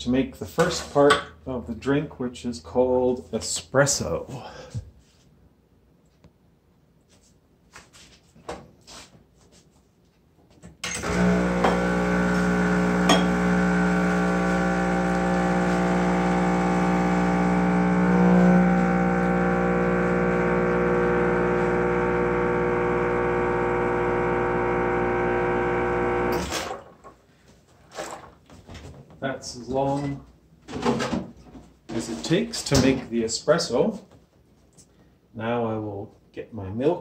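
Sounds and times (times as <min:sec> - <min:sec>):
espresso machine pump humming: 0:11.0 - 0:26.5.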